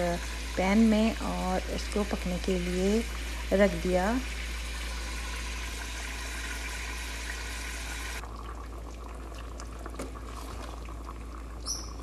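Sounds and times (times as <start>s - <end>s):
chicken sizzling in hot oil: 0.0s - 9.4s
gravy bubbling: 0.0s - 12.0s.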